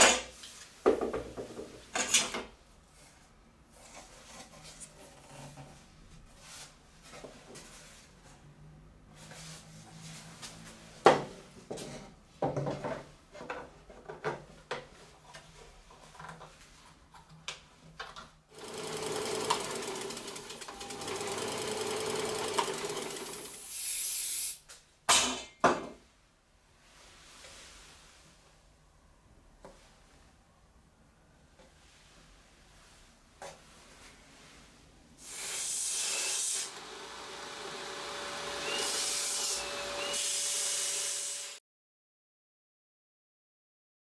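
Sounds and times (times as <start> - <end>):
aerosol spray can hissing: 23.6 - 24.6.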